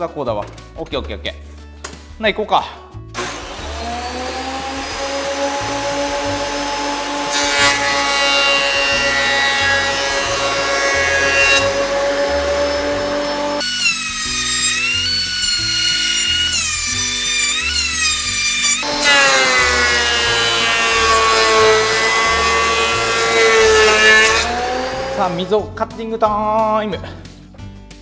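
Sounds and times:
background music with steady beat: 0:00.0 - 0:04.1, 0:24.4 - 0:28.0
thickness planer motor whine: 0:03.2 - 0:25.2.

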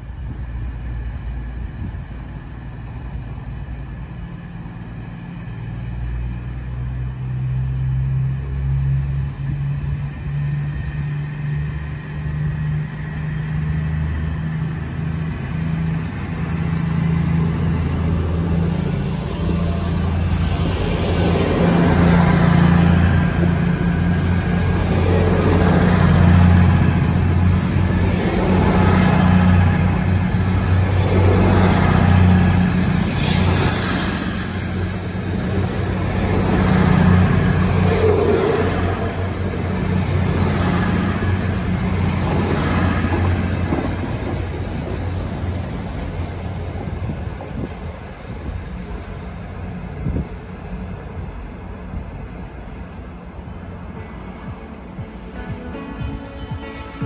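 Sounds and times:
train diesel engines humming: 0:00.0 - 0:57.0
wheel and rail noise: 0:00.0 - 0:57.0.

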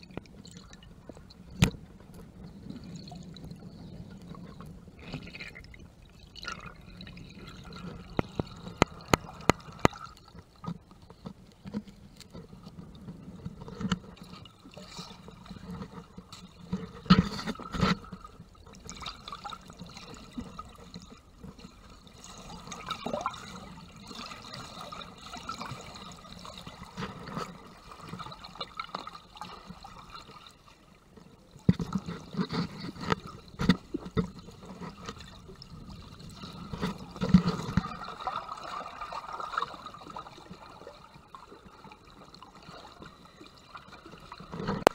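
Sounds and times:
water sloshing and gurgling: 0:00.0 - 0:44.9
knocks and splashes: 0:06.4 - 0:11.9, 0:31.6 - 0:40.6, 0:44.4 - 0:44.9.

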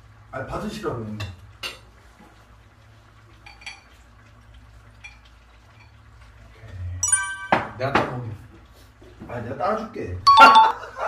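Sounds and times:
glass clinking on glass: 0:07.0 - 0:08.1, 0:10.3 - 0:10.8.

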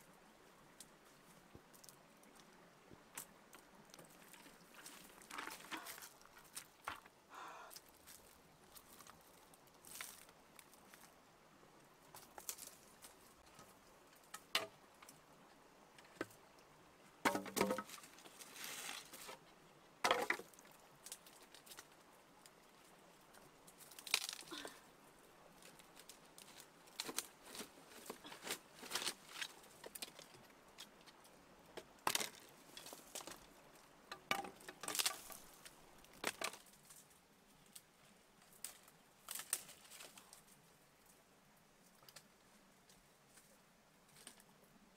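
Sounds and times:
crackling of dry leaves and twigs: 0:00.8 - 0:11.2, 0:11.9 - 0:15.2, 0:17.2 - 0:41.2, 0:41.8 - 0:44.6
clicks of small stones: 0:23.3 - 0:24.8.

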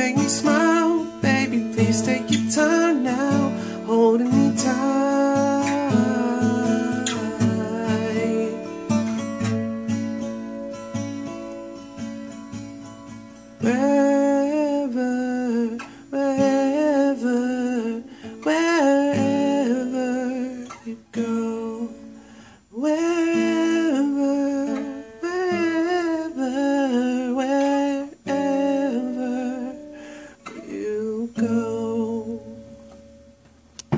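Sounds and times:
man singing wordless melody: 0:00.0 - 0:09.4, 0:13.6 - 0:32.8
acoustic guitar: 0:00.0 - 0:33.9.

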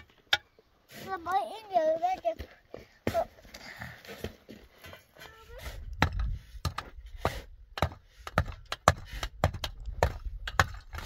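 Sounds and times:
sharp knocks of hard objects: 0:06.0 - 0:11.0.

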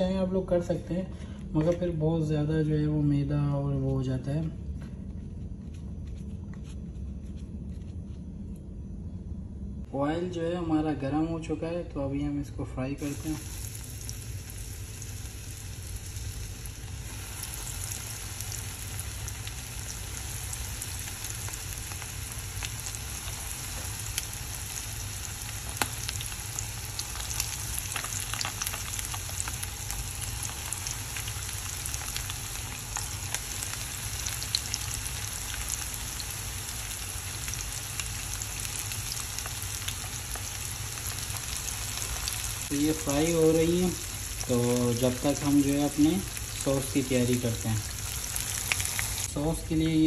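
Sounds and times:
chicken deep-frying in hot oil: 0:13.0 - 0:50.0
oil crackles and pops: 0:13.2 - 0:50.0.

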